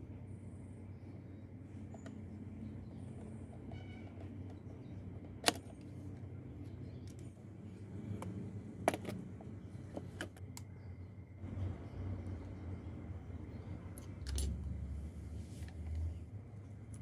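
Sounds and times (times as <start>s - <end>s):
steady low hum: 0.0s - 17.0s
sharp clicks of parts handled: 5.2s - 6.2s, 14.0s - 14.6s.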